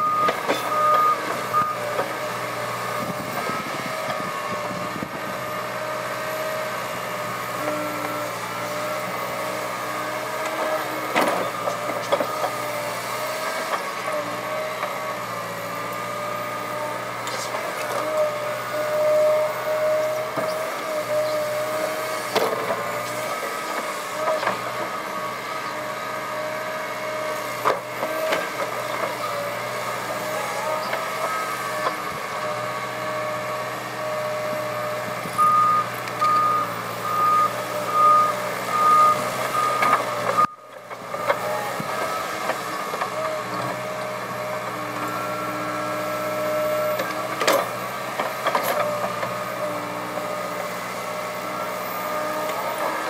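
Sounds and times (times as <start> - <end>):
reversing warning alarm beeping: 0.0 - 1.9, 35.3 - 40.6
excavator diesel engine running: 0.0 - 53.0.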